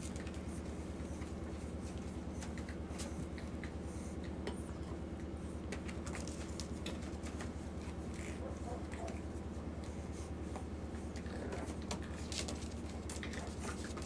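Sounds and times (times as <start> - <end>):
puppy paws scratching on rug: 0.0 - 4.5, 5.2 - 14.0
steady low hum: 0.0 - 14.0.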